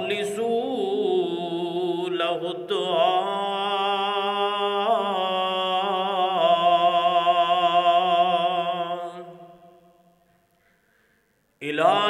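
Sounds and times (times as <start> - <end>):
man's melodic recitation: 0.0 - 6.7.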